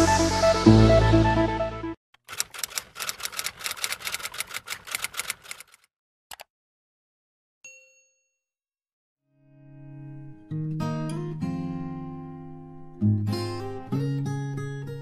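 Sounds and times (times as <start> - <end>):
keyboard typing clicks: 2.2 - 6.5.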